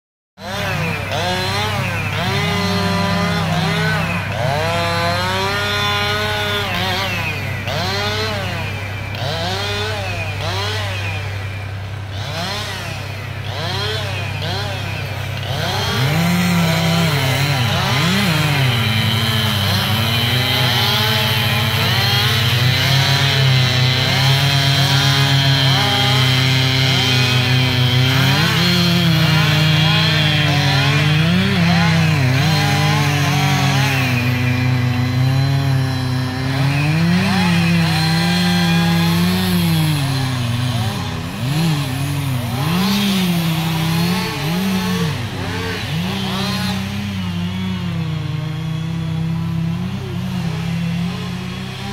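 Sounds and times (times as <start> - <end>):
chainsaw revving and cutting logs: 0.4 - 51.9.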